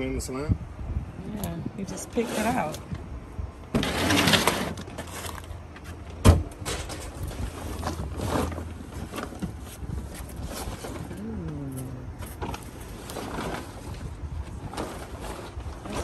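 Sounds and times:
wind buffeting microphone: 0.0s - 3.7s, 9.6s - 16.0s.

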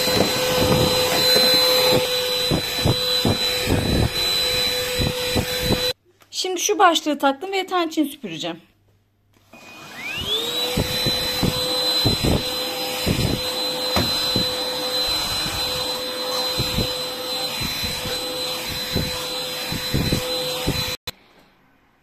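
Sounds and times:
stick vacuum motor whining: 0.0s - 6.0s, 9.6s - 21.1s.

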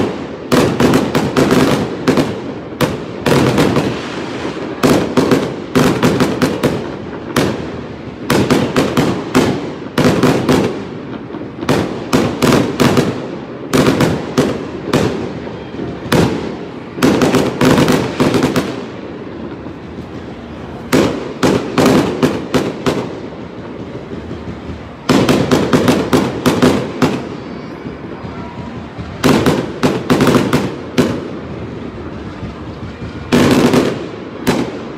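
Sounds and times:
fireworks bursting with sharp bangs: 0.0s - 34.9s.

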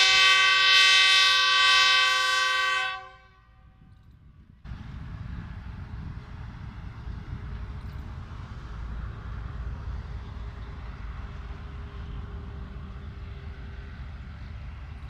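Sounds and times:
distant locomotive rumble: 0.0s - 15.0s
wind buffeting microphone: 3.6s - 15.0s.

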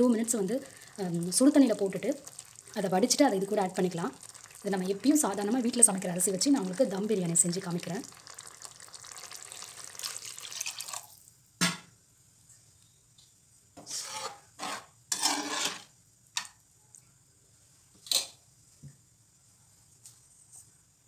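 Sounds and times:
water pouring into a pan: 0.6s - 11.2s.

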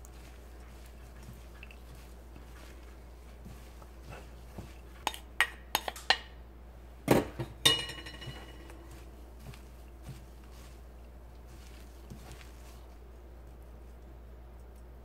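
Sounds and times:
mixing bowl clicking and clinking: 0.0s - 6.4s, 7.4s - 10.7s.

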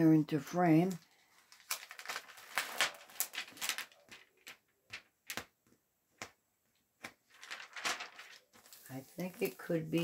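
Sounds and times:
plastic film crinkling: 0.7s - 5.6s, 7.0s - 10.0s.

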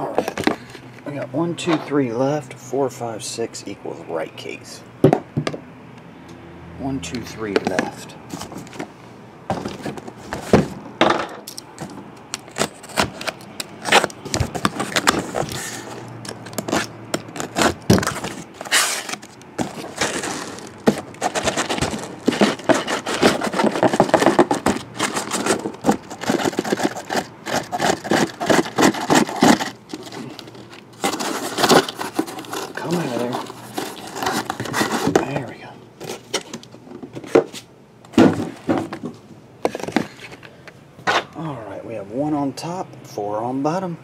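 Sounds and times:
boxes scraped against cardboard: 9.5s - 10.8s, 12.4s - 39.0s, 39.6s - 40.4s
cardboard scraping and cracking: 9.5s - 10.8s, 12.4s - 39.0s.

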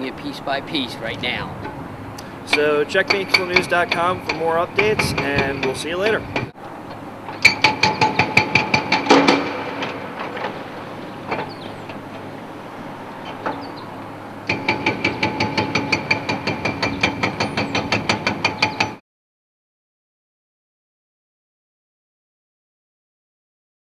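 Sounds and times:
hydraulic breaker hammering concrete: 2.5s - 6.6s, 7.4s - 11.6s, 14.5s - 19.0s.

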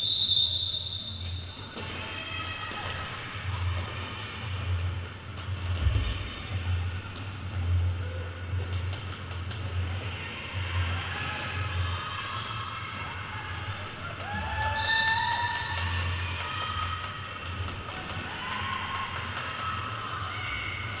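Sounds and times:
skate wheels rumbling on floor: 1.8s - 12.0s, 13.8s - 21.0s
sharp clicks of skates: 7.1s - 10.1s, 14.0s - 21.0s.

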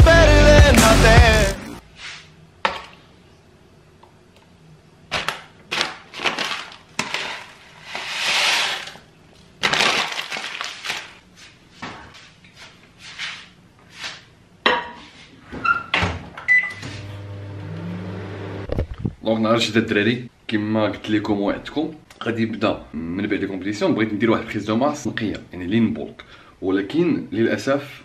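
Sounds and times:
microwave running hum: 16.4s - 18.8s.

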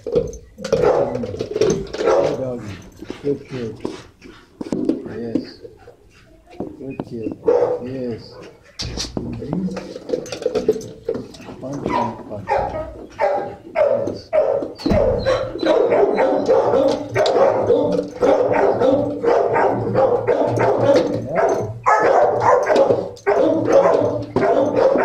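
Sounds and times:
dogs barking: 0.1s - 4.5s, 7.2s - 8.8s, 11.5s - 25.0s.

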